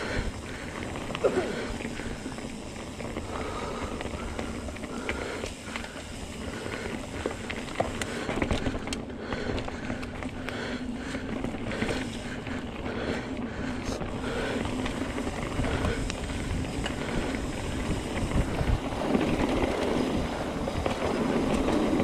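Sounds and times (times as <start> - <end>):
bike clicks and rattles: 0.0 - 22.0
bike tyre rumble on dirt: 0.0 - 22.0
wind on microphone: 15.4 - 22.0.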